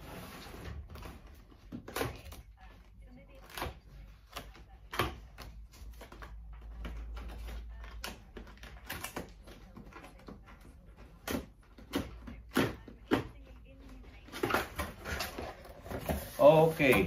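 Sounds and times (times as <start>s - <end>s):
cardboard box rustling: 14.3s - 17.0s.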